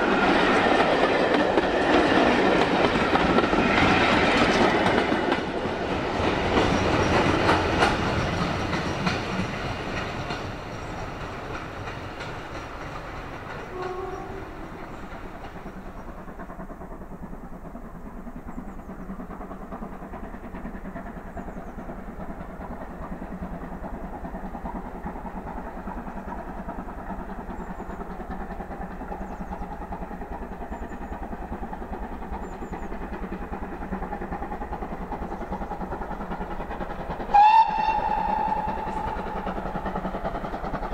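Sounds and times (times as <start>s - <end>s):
distant steam locomotive working: 0.0s - 40.9s
train wheels clicking over rails: 0.0s - 40.9s
faint birdsong: 8.1s - 11.7s, 13.4s - 16.4s, 18.2s - 19.6s, 20.9s - 22.3s, 23.7s - 34.2s.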